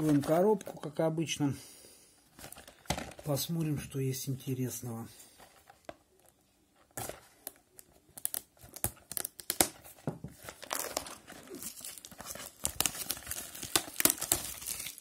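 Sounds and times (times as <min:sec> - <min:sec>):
plastic wrap crackling and tearing: 0:07.0 - 0:15.0.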